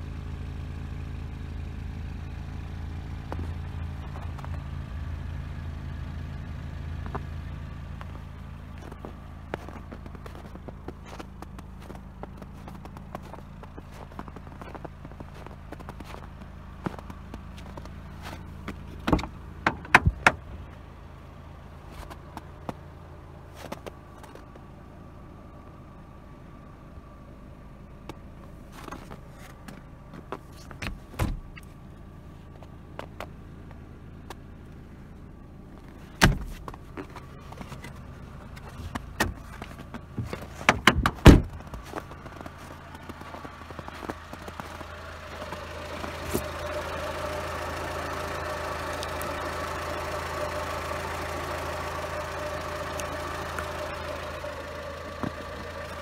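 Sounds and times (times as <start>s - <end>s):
car engine idling: 0.0s - 56.0s
car door knocks and thumps: 19.0s - 20.5s, 30.7s - 31.6s, 36.2s - 36.8s, 40.2s - 41.8s.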